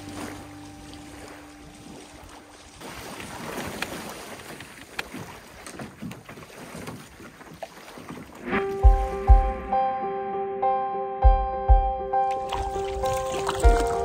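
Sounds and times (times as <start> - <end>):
small waves lapping on shore: 0.0 - 9.0, 12.3 - 14.0
water splashing from wading: 0.0 - 9.7, 12.3 - 14.0.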